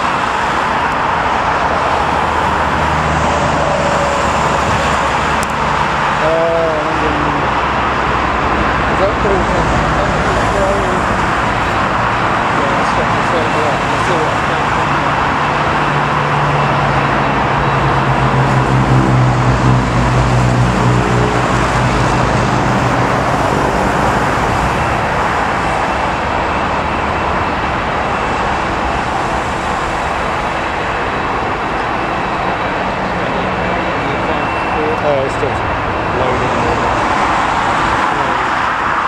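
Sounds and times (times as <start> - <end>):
jet airliner roar: 0.0 - 39.0
road vehicles passing: 0.0 - 39.0.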